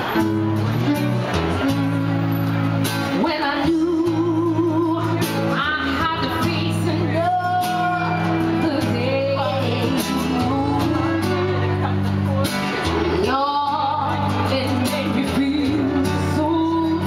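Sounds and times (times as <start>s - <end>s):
guitar: 0.0s - 17.0s
violin: 0.0s - 17.0s
woman singing into a microphone: 3.0s - 11.7s, 12.8s - 17.0s.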